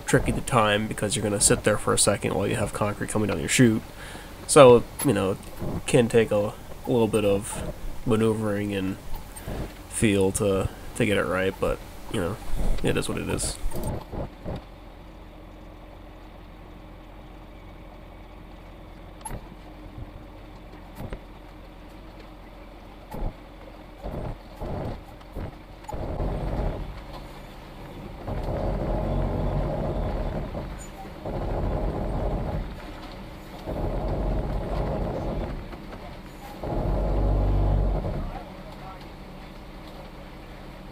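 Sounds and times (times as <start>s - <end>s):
diesel truck engine idling: 0.0s - 13.9s, 25.6s - 40.9s.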